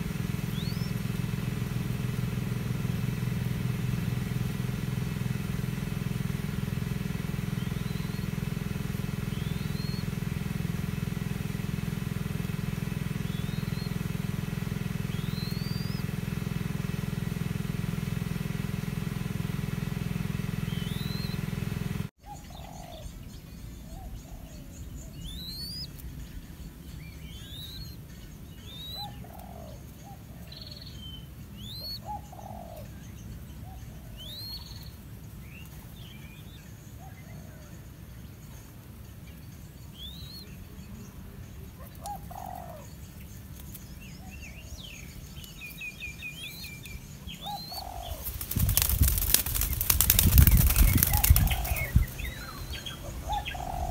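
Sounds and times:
birds chirping: 0.0s - 53.9s
engine hum: 0.0s - 53.9s
short low bird calls: 45.5s - 53.9s.

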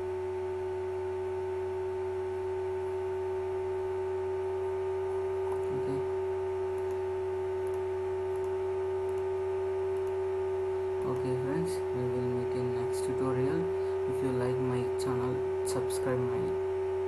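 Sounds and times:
electrical hum and whine: 0.0s - 17.0s.

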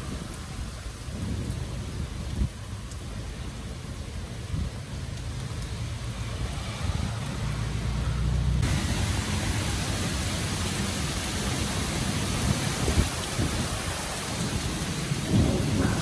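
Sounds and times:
low rumbling thunder: 0.0s - 4.8s, 8.6s - 16.0s
heavy rain pouring: 0.0s - 16.0s.

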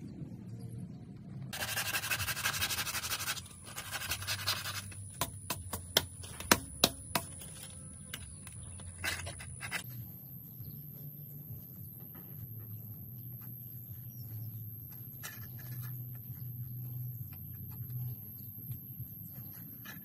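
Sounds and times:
faint low hum: 0.0s - 20.0s
sandpaper and blade rasping on wood: 1.6s - 5.3s.

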